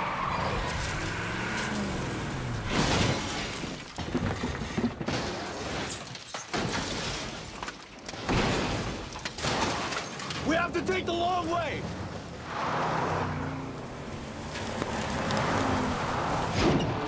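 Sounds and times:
truck engine revving: 0.0s - 3.8s, 12.1s - 17.0s
crashing metal and rock: 0.5s - 12.4s.

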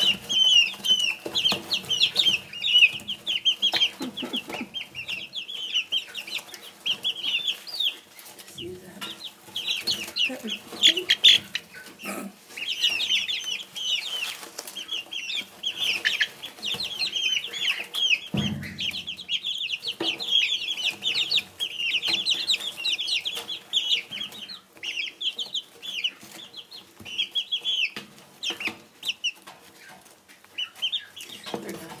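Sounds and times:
pecking clicks in shavings: 0.0s - 11.9s, 12.6s - 18.3s
chicks peeping: 0.0s - 32.0s.

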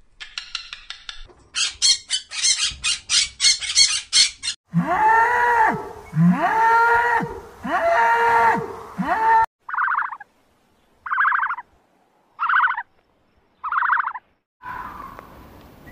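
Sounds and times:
macaw squawking: 1.6s - 4.6s, 9.7s - 10.3s, 11.1s - 11.6s, 12.4s - 12.9s, 13.6s - 15.2s
cow mooing: 4.7s - 9.5s.

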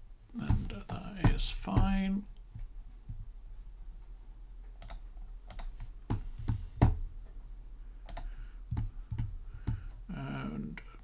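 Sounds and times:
faint low hum: 0.0s - 11.0s
computer mouse clicks: 4.8s - 7.0s, 8.0s - 10.0s.

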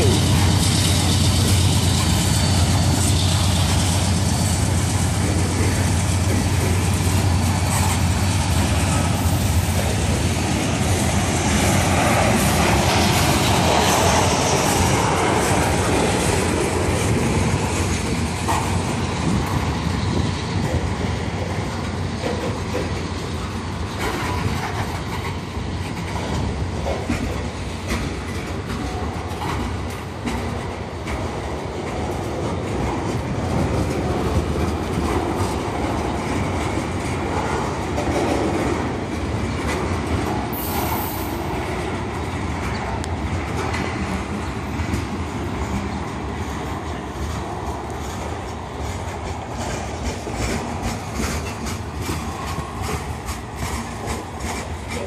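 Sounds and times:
train wheels rumbling on rail: 0.0s - 55.0s
wheels clicking over rail joints: 0.0s - 55.0s.

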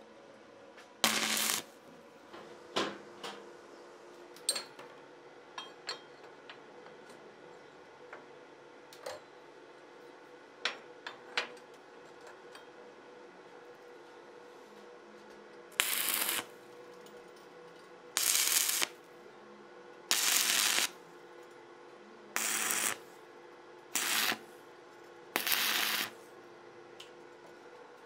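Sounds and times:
welder low hum: 1.0s - 1.8s, 15.8s - 16.6s, 18.2s - 19.0s, 20.1s - 21.0s, 22.3s - 23.2s, 23.9s - 24.6s, 25.4s - 26.3s
welding arc crackle: 1.0s - 1.8s, 15.8s - 16.6s, 18.2s - 19.0s, 20.1s - 21.0s, 22.4s - 23.0s, 23.9s - 24.4s, 25.4s - 26.2s.

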